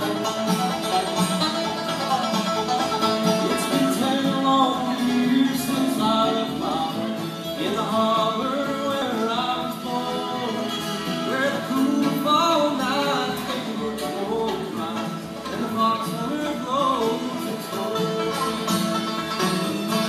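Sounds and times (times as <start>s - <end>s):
acoustic guitar: 0.0s - 20.0s
banjo: 0.0s - 20.0s
bluegrass band playing: 0.0s - 20.0s
person singing: 3.4s - 18.8s.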